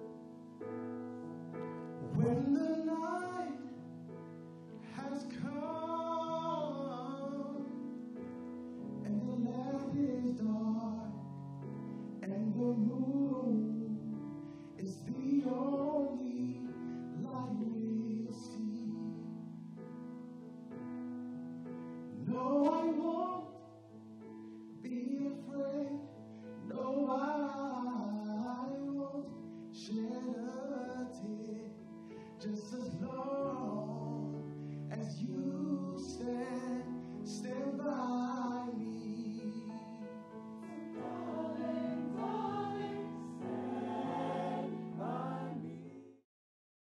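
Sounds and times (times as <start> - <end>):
man singing lead: 2.0 - 3.8, 4.8 - 8.0, 9.0 - 11.4, 12.2 - 19.4, 22.2 - 23.6, 24.8 - 31.8, 32.4 - 43.5
held accompaniment chords: 39.5 - 45.9
vocal group singing: 40.7 - 46.2.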